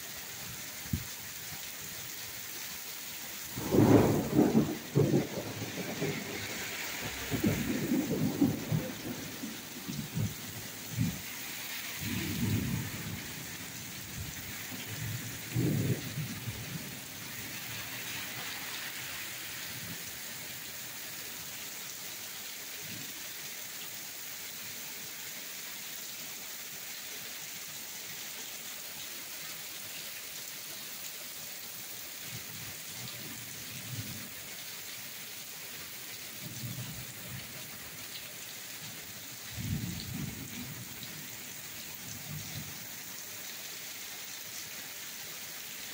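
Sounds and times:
heavy rain on pavement: 0.0s - 45.9s
thunder rumbling: 3.5s - 11.2s, 12.0s - 13.4s, 14.9s - 17.0s.

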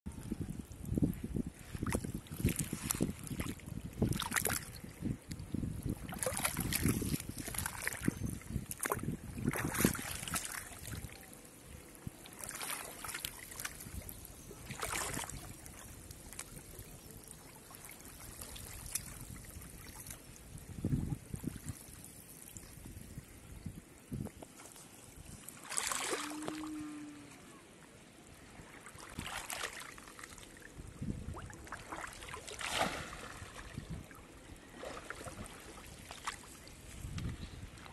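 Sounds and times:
water splashing and sloshing: 0.1s - 23.4s, 24.0s - 37.9s.

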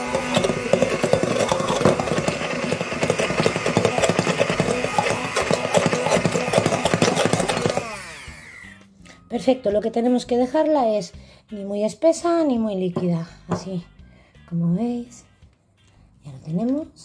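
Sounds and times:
immersion blender churning batter: 0.0s - 8.7s
motor winding down: 0.0s - 8.8s.

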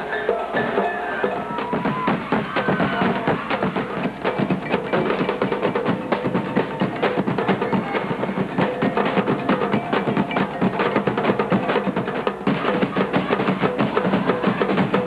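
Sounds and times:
fast percussion music: 0.0s - 15.0s.

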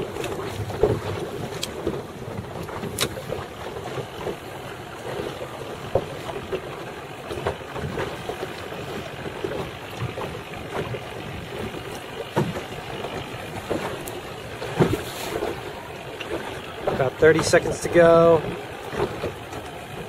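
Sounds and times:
water lapping against boat hull: 0.0s - 20.0s.

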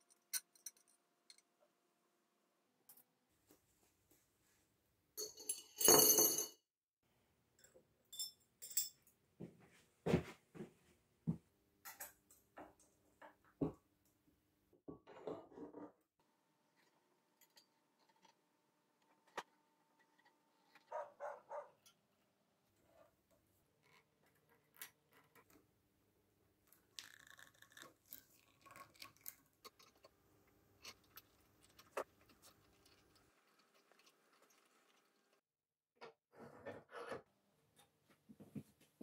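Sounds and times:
metal wires clinking and rattling: 5.2s - 6.6s.

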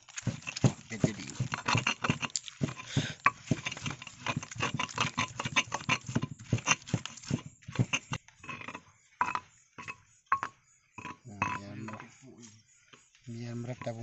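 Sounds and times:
stone pestle pounding in mortar: 0.1s - 8.2s.

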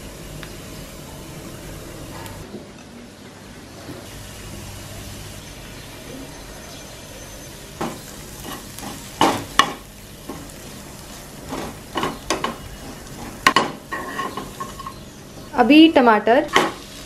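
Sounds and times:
onions sizzling in a pan: 0.0s - 2.4s, 4.0s - 17.0s
metal spatula scraping a pan: 11.5s - 15.0s.

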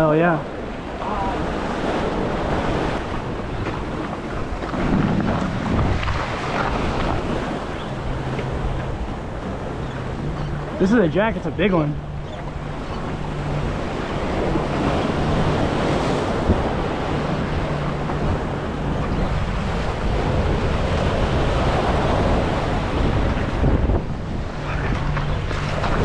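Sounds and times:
surf washing: 0.0s - 26.0s
wind buffeting microphone: 0.0s - 26.0s.

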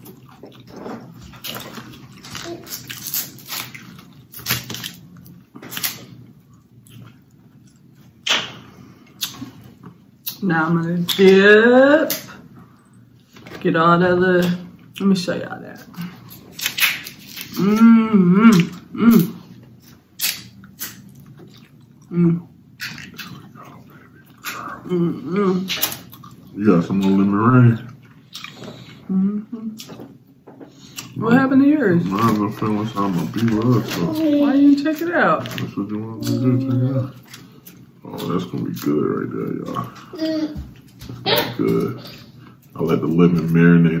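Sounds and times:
loud wet smacks: 8.2s - 8.6s, 16.6s - 17.5s
person humming mmm: 17.5s - 19.5s, 22.1s - 22.5s, 24.4s - 25.7s, 29.0s - 29.8s
slurping and chewing: 25.6s - 29.0s.

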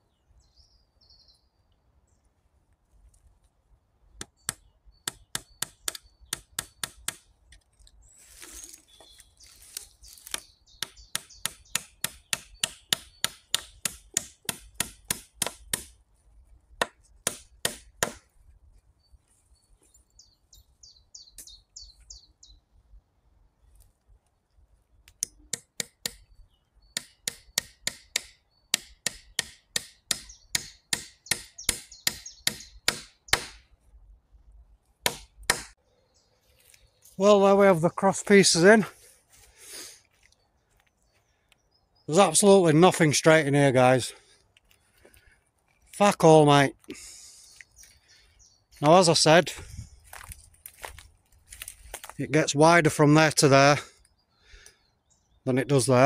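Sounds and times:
tool striking wood: 4.2s - 7.3s, 10.2s - 16.0s, 16.8s - 18.3s, 25.2s - 26.3s, 27.0s - 33.7s, 35.0s - 35.8s.

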